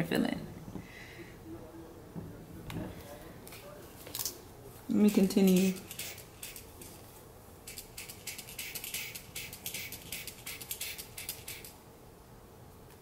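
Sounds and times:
pump applicator hissy puffs: 7.7 - 11.8.

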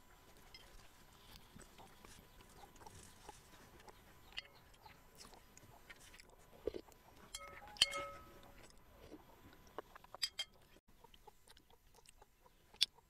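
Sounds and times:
soft chewing: 0.0 - 13.0
spoon clinking glass bowl: 7.3 - 8.3.

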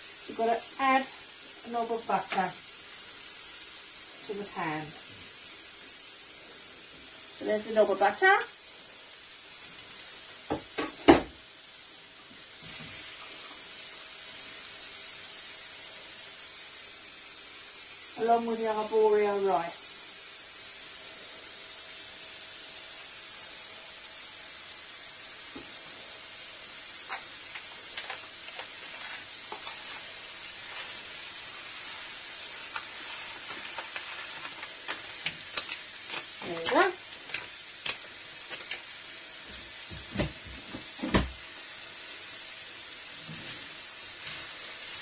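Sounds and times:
food sizzling in frying pan: 0.0 - 45.0
wooden spoon scraping pan: 28.0 - 31.2.

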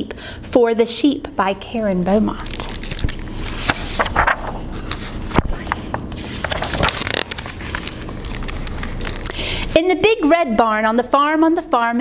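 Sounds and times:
book pages turning: 2.4 - 9.4.

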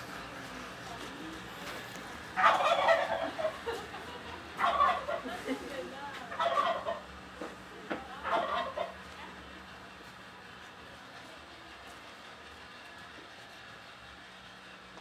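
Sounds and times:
turkey gobbling: 2.4 - 3.8, 4.6 - 5.3, 6.3 - 7.1, 8.2 - 9.0.

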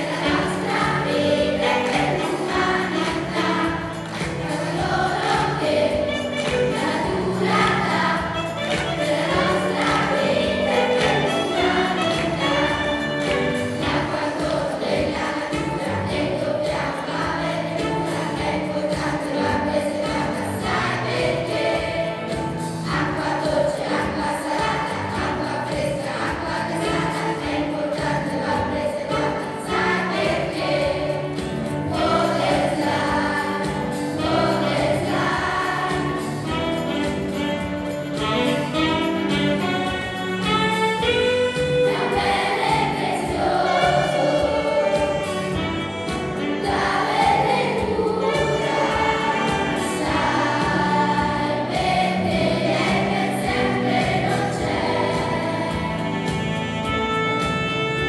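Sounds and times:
children's choir singing: 0.0 - 58.0.

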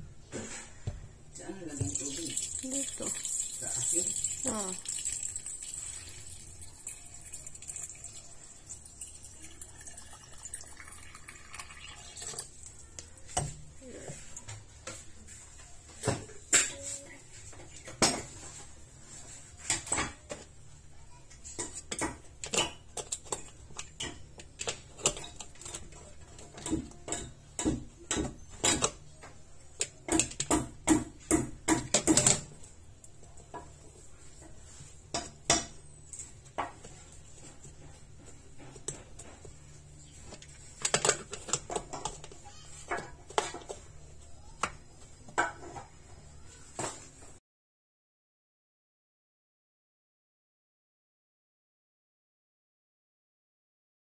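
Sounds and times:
water trickling: 1.7 - 12.5.

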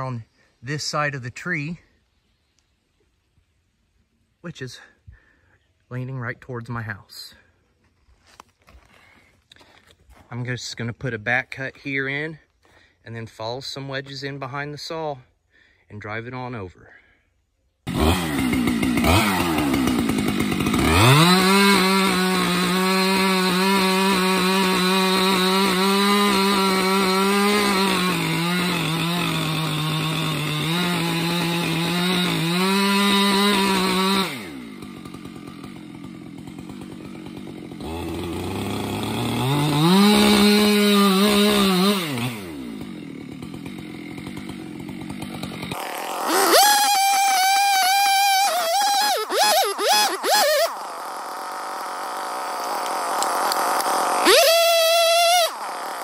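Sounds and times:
chainsaw cutting wood: 17.8 - 56.0.

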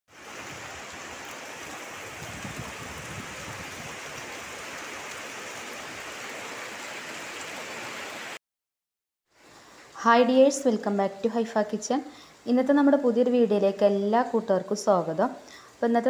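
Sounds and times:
heavy rain on palm leaves: 0.1 - 8.4.

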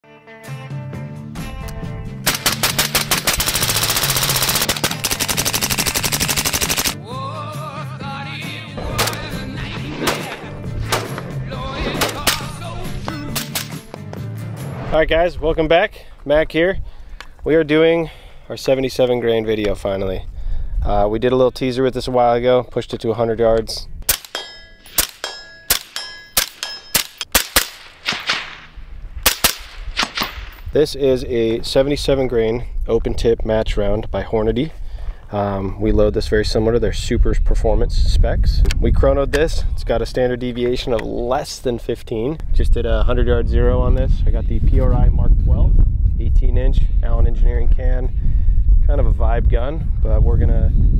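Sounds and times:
background music with bass line: 0.0 - 2.3, 7.0 - 15.0
rapid gunfire: 2.2 - 7.0, 25.0 - 30.5
suppressed rifle shots: 2.2 - 7.0, 8.9 - 11.4, 24.0 - 30.6
short metallic ring: 24.3 - 27.2.

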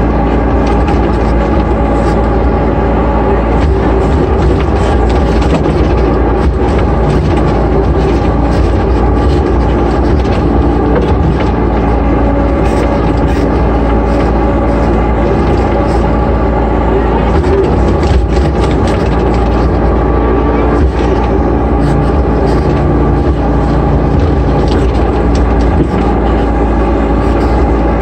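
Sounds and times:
excavator diesel engine running: 0.0 - 28.0.

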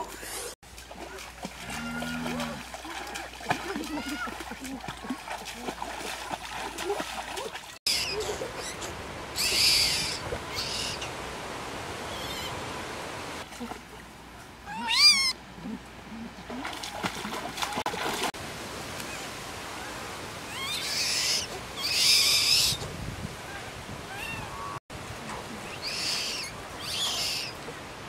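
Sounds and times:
baby monkey screeching: 7.9 - 8.8, 9.4 - 11.0, 14.7 - 15.3, 20.5 - 22.8, 25.8 - 27.5
baby monkey squeaking: 7.9 - 8.8, 9.4 - 11.0, 14.7 - 15.3, 20.5 - 22.8.

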